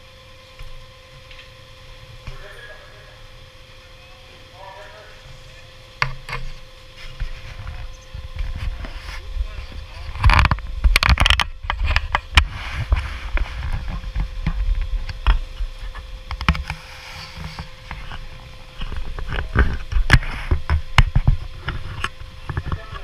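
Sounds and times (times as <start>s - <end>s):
faint steady hum: 0.0s - 23.0s
wind rumbling on microphone: 7.1s - 16.5s.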